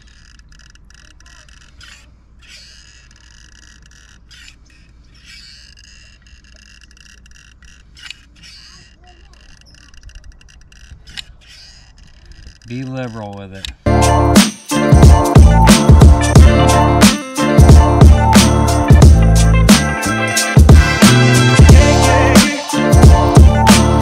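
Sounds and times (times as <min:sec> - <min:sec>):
steady high-pitched background: 0:13.9 - 0:24.0.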